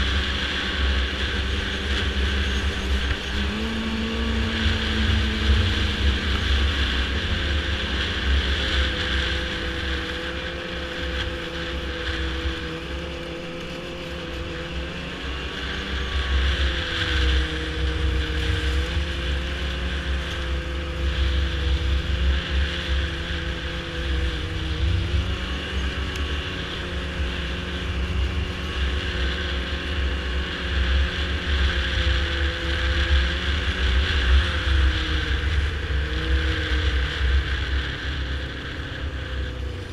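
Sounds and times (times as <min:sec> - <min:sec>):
snowmobile engine running: 0:00.0 - 0:39.9.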